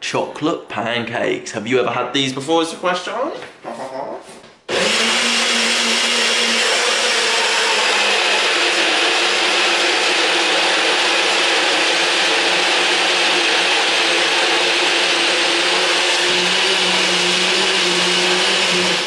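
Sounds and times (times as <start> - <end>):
blender running: 4.7 - 19.0.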